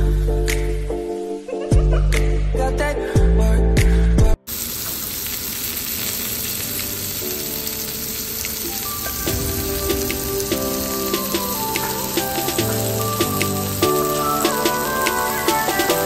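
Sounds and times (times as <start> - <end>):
music: 0.0 - 4.5, 6.6 - 16.0
steaks sizzling in a frying pan: 4.5 - 16.0.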